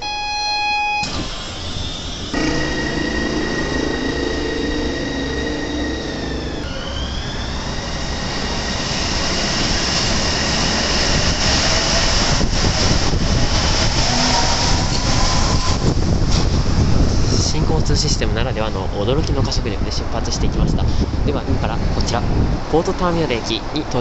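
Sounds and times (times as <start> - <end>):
train electric whine: 0.0 - 16.8
train running noise: 1.0 - 23.7.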